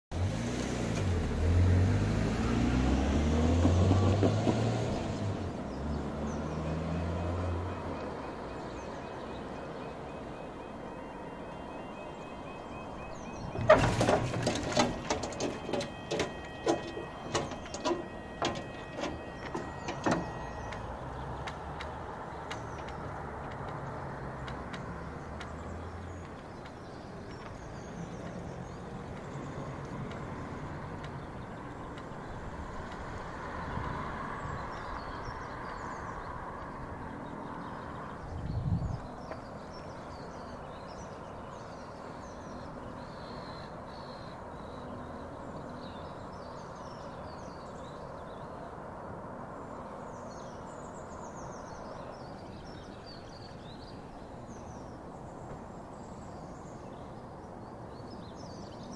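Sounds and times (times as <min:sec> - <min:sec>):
level crossing alarms: 0:07.0 - 0:21.4.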